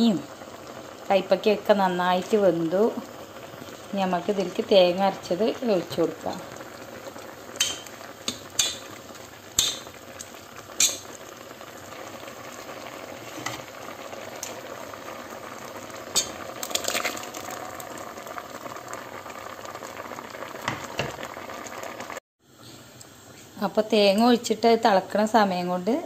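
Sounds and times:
curry bubbling in a pot: 0.0s - 22.2s
ladle clinking against pot: 7.6s - 8.8s.

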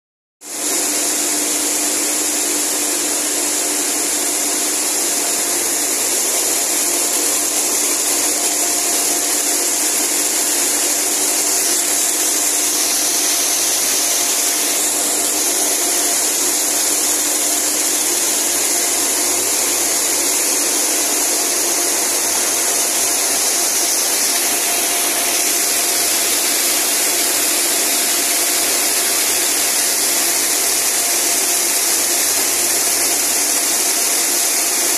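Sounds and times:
braiding machines hissing and clattering: 0.5s - 34.9s.

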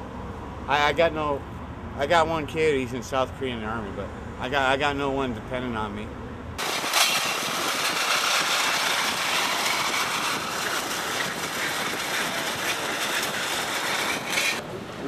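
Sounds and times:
shopping cart rattling on pavement: 6.6s - 14.6s.

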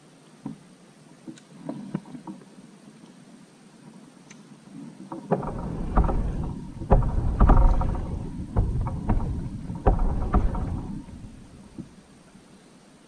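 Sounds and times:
low rumble: 5.3s - 11.9s
knocks and thumps on plastic kayak: 5.3s - 12.0s.

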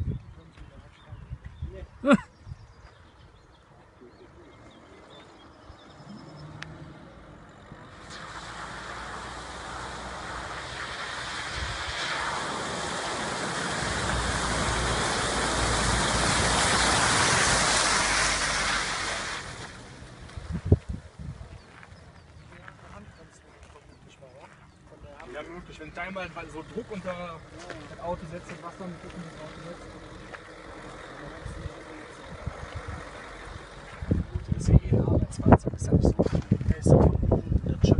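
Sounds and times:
low engine rumble: 2.6s - 11.7s, 12.4s - 37.9s
vehicle splashing through water: 4.6s - 22.2s, 25.4s - 35.2s.

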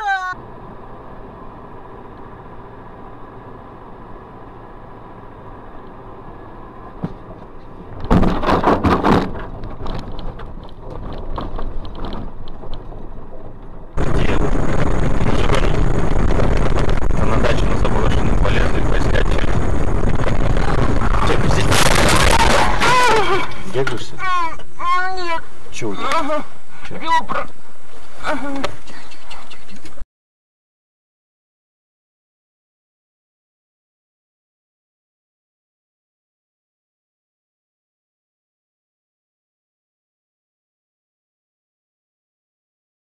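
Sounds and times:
road and engine noise: 0.0s - 30.0s
loud car collision: 7.9s - 12.4s, 14.0s - 24.1s
loud steady rushing noise: 14.0s - 22.4s.

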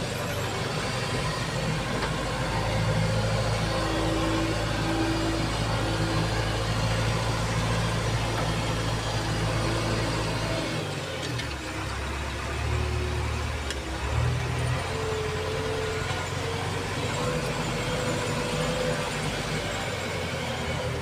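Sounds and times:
diesel engine running from cab: 0.0s - 21.0s.

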